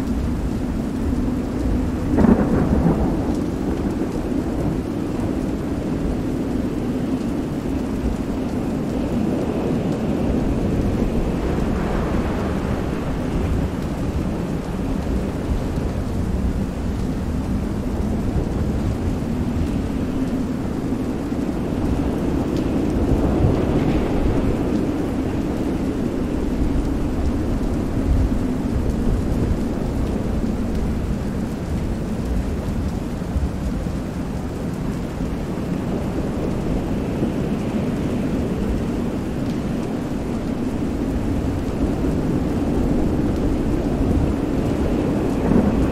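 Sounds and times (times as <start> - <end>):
heavy rain: 0.0 - 45.9
low rumble of thunder: 0.0 - 45.9.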